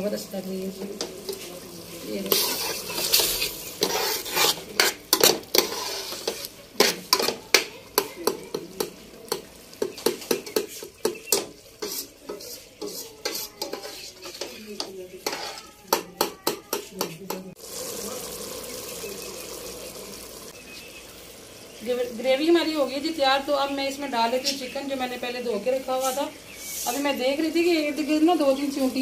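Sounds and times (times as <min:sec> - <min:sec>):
gravy sizzling: 0:00.0 - 0:29.0
metal ladle scraping a steel pot: 0:02.2 - 0:07.4, 0:10.6 - 0:15.8.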